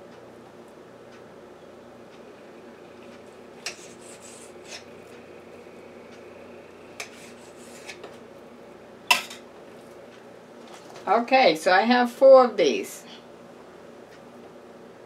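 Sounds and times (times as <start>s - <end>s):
low steady hum: 0.0s - 15.0s
knife scraping on cutting board: 3.6s - 4.9s, 7.0s - 8.2s.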